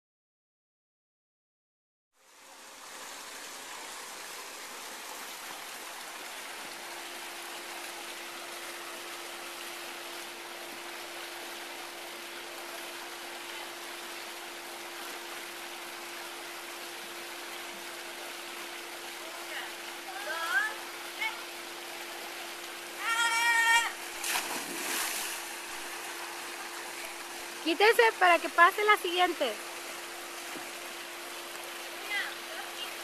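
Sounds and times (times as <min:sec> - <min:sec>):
faint steady hum: 0:02.2 - 0:33.0
water rushing down rock slide: 0:23.0 - 0:25.8.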